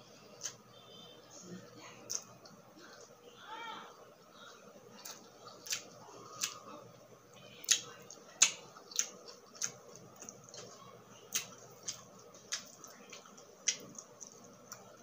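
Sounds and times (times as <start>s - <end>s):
chewing and mouth smacks: 5.0s - 6.7s, 7.6s - 15.0s.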